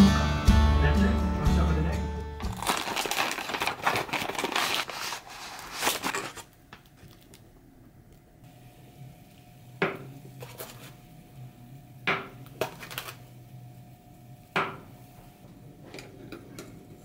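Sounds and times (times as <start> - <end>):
faint steady hum: 3.5 - 17.0.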